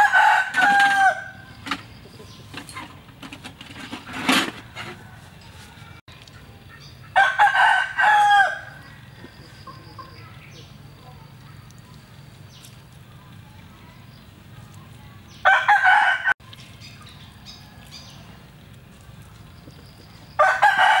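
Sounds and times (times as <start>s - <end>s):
rooster crowing: 0.0s - 1.5s, 4.8s - 6.0s, 7.2s - 9.0s, 15.4s - 16.4s, 20.4s - 21.0s.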